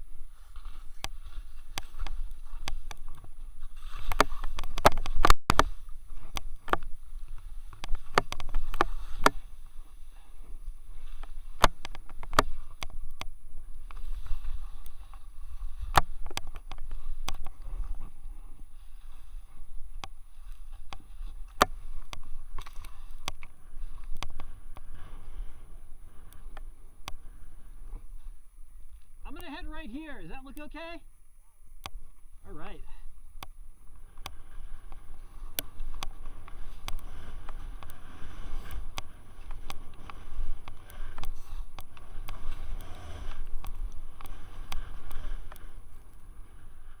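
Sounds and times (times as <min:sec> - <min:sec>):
skis swishing through snow: 0:00.2 - 0:06.3, 0:07.0 - 0:11.6, 0:13.5 - 0:16.2, 0:16.8 - 0:26.8, 0:34.0 - 0:47.0.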